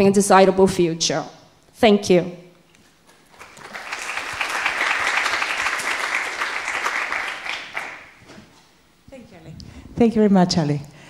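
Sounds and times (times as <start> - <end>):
audience applause: 3.1 - 8.2.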